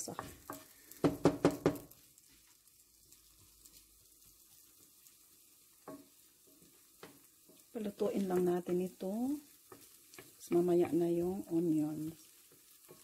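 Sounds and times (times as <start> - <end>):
potatoes sizzling in oil: 0.0 - 13.0
spatula knocking on frying pan: 0.1 - 2.0, 5.7 - 11.2.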